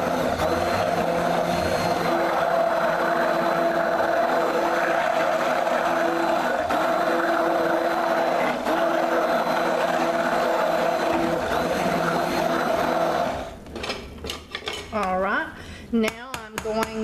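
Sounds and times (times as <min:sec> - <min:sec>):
stick blender running: 0:00.0 - 0:13.6.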